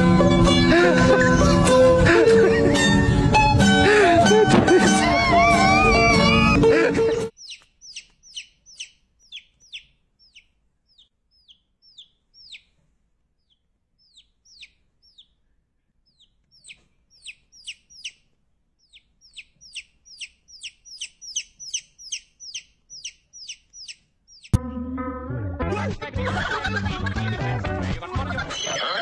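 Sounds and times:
chick peeping: 5.0 - 12.8, 13.4 - 15.4, 16.0 - 24.6.

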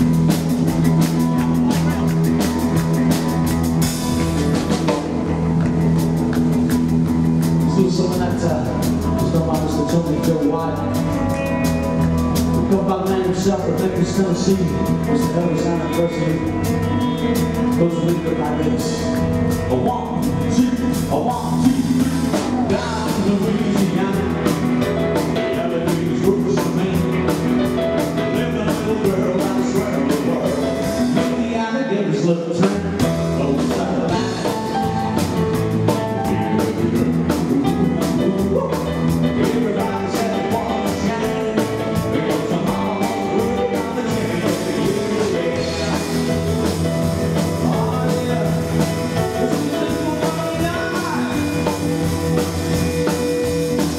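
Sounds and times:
drum kit: 0.0 - 53.9
piano: 0.0 - 53.9
rock and roll band playing: 0.0 - 53.9
upright double bass: 0.0 - 53.9
man singing: 7.6 - 53.9.

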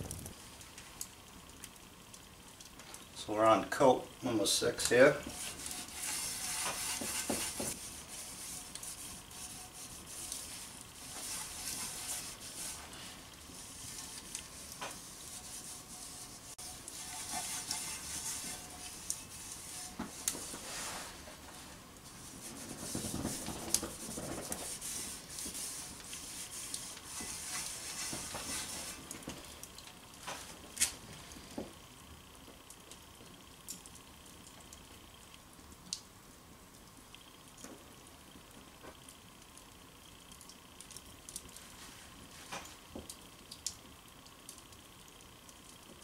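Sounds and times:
sharp crackles: 0.0 - 3.3, 4.8 - 37.7
oil sizzling in hot pan: 4.5 - 31.2
rag rubbing pan: 4.8 - 29.4.

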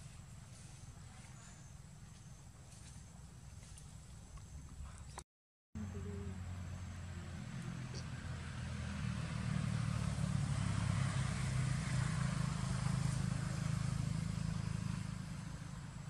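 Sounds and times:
motor engine humming: 5.8 - 12.1.

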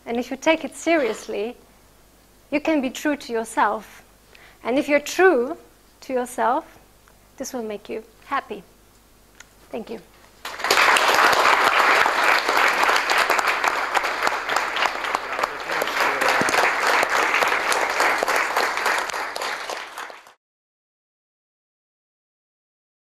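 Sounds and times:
audience applauding: 10.4 - 20.4.

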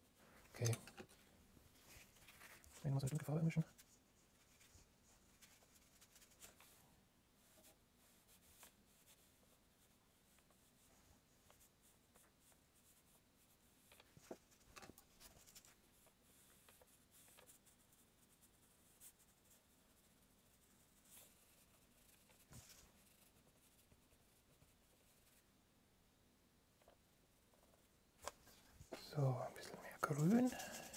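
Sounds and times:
paintbrush scratching and tapping: 11.4 - 25.4, 26.8 - 30.9.

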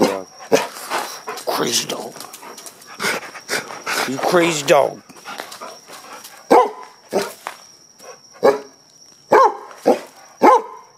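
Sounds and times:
dog barking: 6.4 - 7.4, 8.0 - 10.9.

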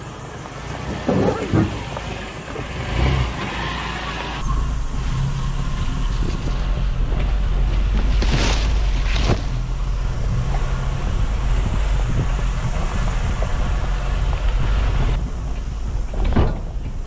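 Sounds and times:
van engine running: 0.0 - 17.0
wind on microphone: 5.8 - 17.0
ferns brushing against van: 7.3 - 9.7.

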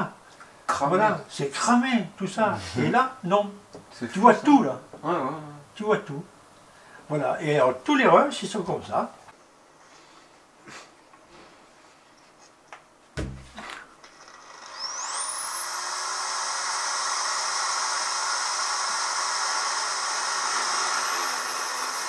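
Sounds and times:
low thump: 13.2 - 13.8
power tool motor whining: 14.1 - 22.0.

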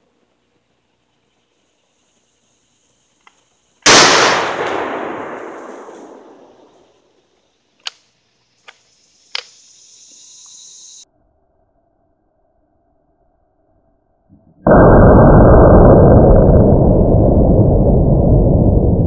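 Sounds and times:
shotgun blast with echo: 3.9 - 6.7
gun clicks: 7.8 - 9.6.

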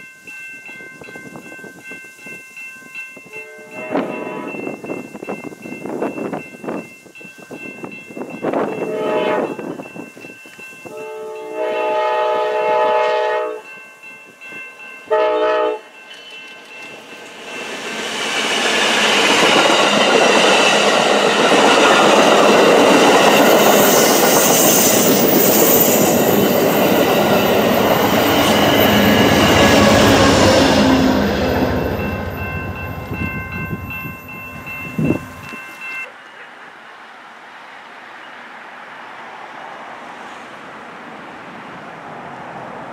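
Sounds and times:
passenger train passing: 0.0 - 42.9
locomotive air horn blasts: 3.3 - 4.6, 8.8 - 9.6, 10.9 - 13.6, 15.1 - 15.9.

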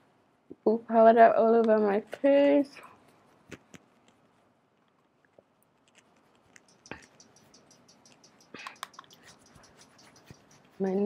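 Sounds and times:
light clicks and taps: 4.8 - 11.0
makeup brush brushing powder: 5.8 - 11.0.

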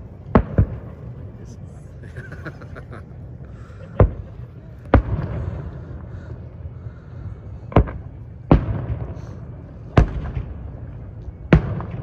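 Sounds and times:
lingering rumble: 0.0 - 12.0
distant fireworks bangs: 0.3 - 1.2, 3.9 - 6.2, 7.7 - 12.0.

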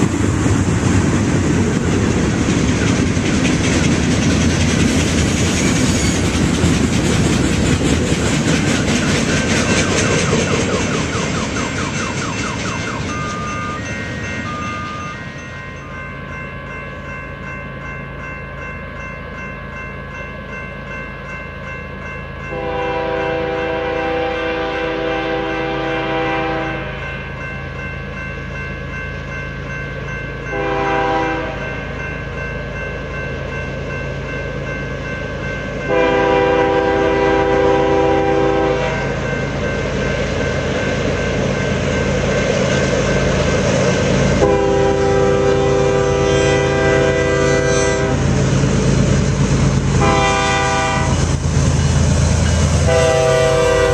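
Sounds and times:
train air horn blasts: 22.5 - 27.0, 30.5 - 31.6, 35.9 - 39.1, 44.4 - 48.3, 50.0 - 51.3, 52.8 - 53.9.

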